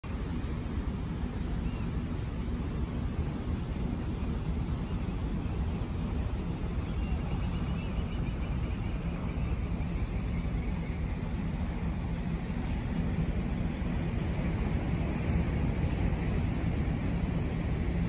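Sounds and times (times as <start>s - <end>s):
engine idling low rumble: 0.0s - 18.0s.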